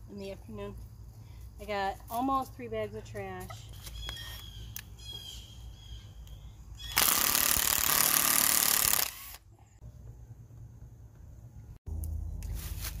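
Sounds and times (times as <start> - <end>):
drill motor whining: 6.9 - 9.4.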